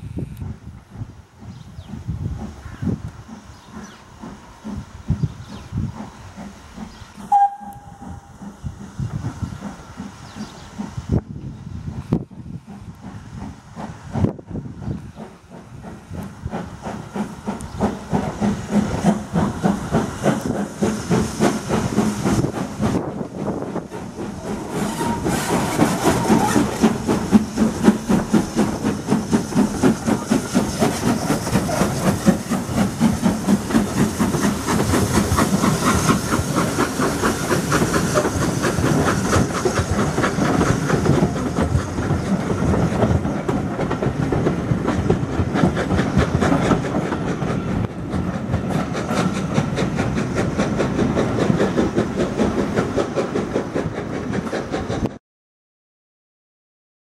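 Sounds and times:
steam hissing: 0:00.0 - 0:55.0
steam locomotive exhaust beats: 0:00.0 - 0:55.2
wheels clicking over rail joints: 0:11.9 - 0:55.2.

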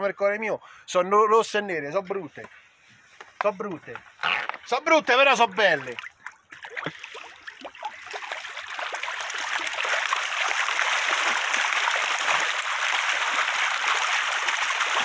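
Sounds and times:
fish thrashing and splashing: 0:05.4 - 0:15.0.

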